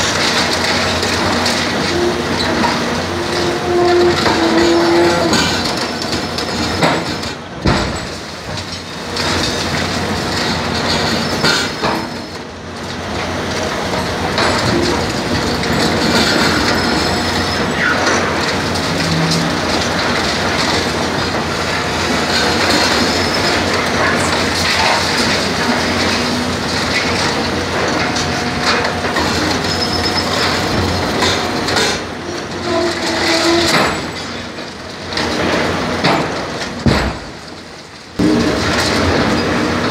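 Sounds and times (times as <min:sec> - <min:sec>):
concrete cracking and grinding: 0:00.0 - 0:34.4
excavator engine humming: 0:09.0 - 0:36.6.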